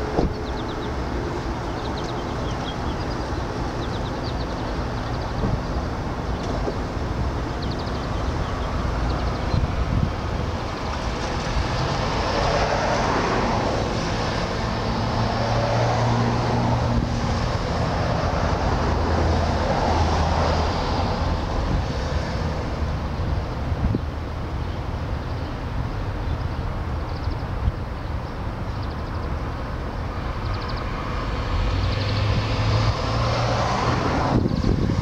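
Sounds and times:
vehicle passing: 7.8 - 23.5, 30.1 - 35.0.

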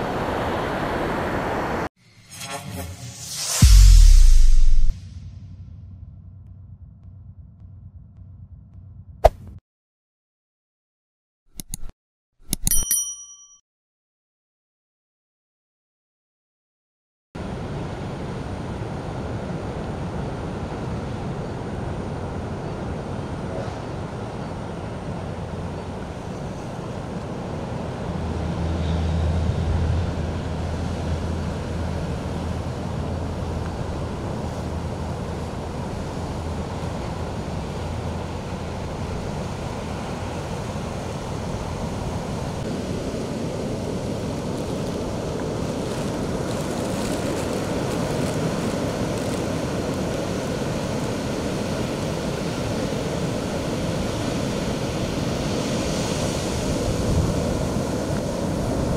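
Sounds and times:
wind: 0.0 - 8.0, 17.4 - 58.9
low rumble: 2.0 - 9.6
surf washing over rocks: 30.4 - 58.9.

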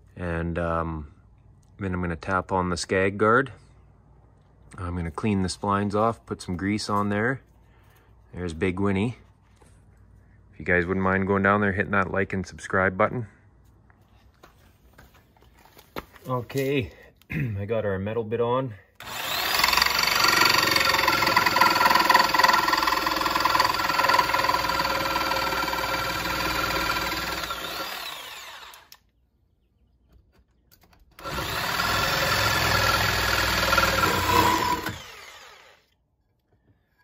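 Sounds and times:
jigsaw cutting metal: 19.0 - 29.0, 31.2 - 35.9.

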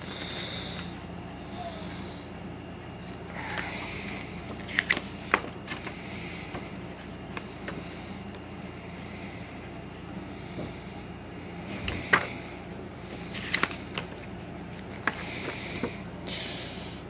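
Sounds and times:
booklet pages flipping: 3.0 - 6.0, 11.8 - 12.4, 13.1 - 16.2.

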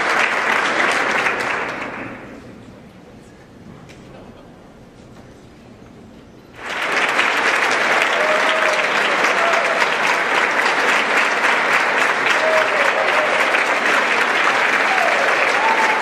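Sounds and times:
audience applauding: 0.0 - 2.3, 6.6 - 16.0.

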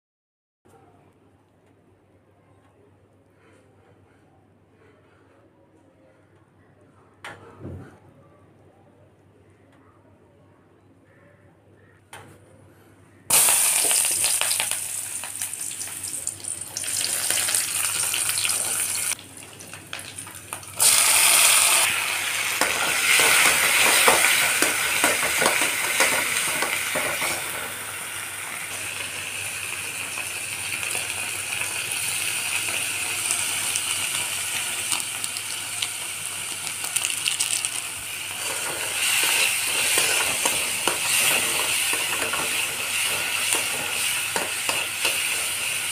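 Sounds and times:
vegetables sizzling in hot oil: 13.3 - 45.9
spoon scraping pan: 38.4 - 45.9.

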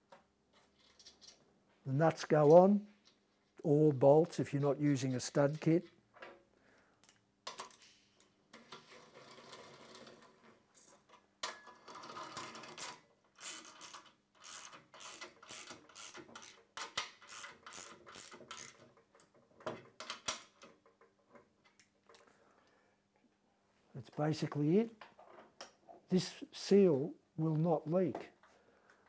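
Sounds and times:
ratchet wrench clicking: 13.4 - 16.6, 17.2 - 18.8.

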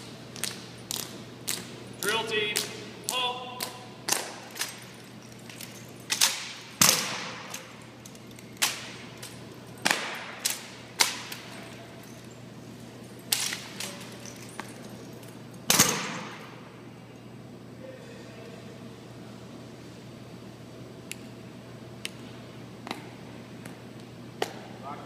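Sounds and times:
rifles slapping and knocking: 0.4 - 12.3, 13.3 - 16.4.

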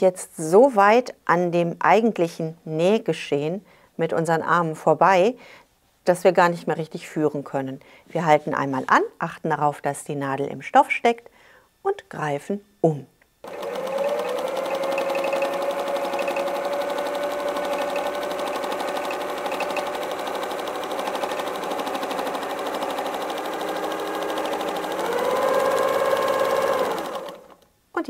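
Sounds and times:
sewing machine running: 13.4 - 27.6.

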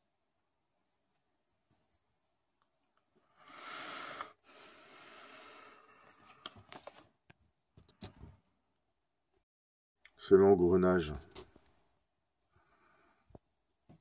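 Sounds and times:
person exhaling: 3.4 - 6.2.

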